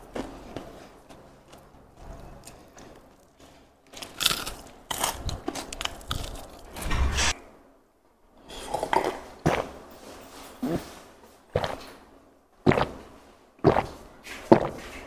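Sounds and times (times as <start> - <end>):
chewing and crunching food: 0.0 - 6.8, 10.6 - 15.0.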